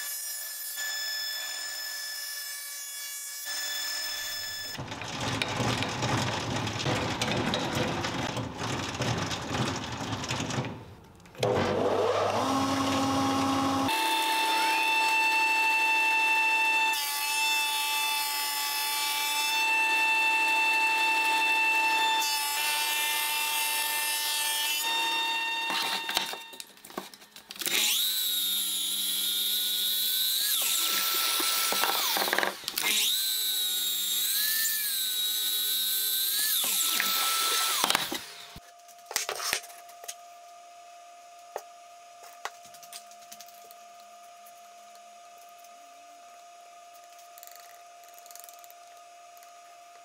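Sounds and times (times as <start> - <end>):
thickness planer whining: 0.0 - 26.6, 27.6 - 38.6
planer cutting boards: 0.0 - 39.7
miter saw whining: 11.4 - 17.0, 27.6 - 38.6.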